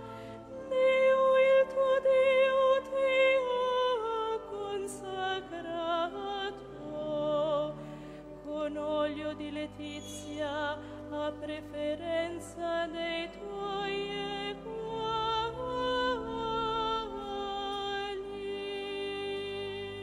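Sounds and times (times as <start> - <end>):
slow sacred music: 0.0 - 20.0.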